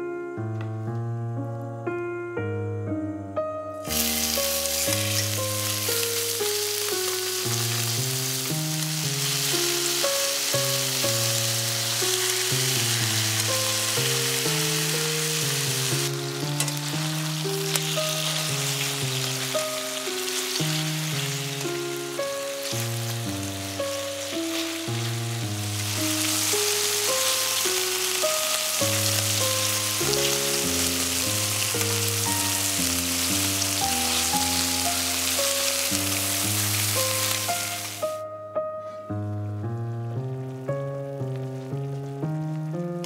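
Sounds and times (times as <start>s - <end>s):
soft piano music: 0.0s - 43.0s
chicken sizzling in frying pan: 3.8s - 38.2s.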